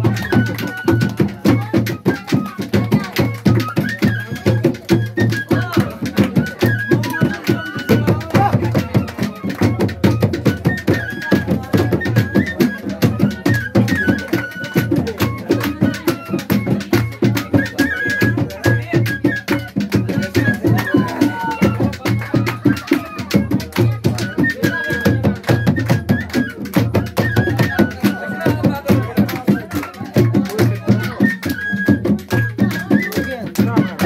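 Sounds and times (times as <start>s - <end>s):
fast steady drumming: 0.0s - 34.0s
high wind instrument melody: 0.0s - 34.0s.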